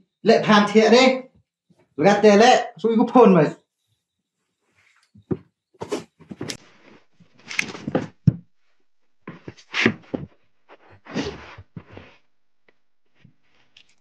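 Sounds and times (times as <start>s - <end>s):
clothes and bedding rustling: 4.6s - 12.3s.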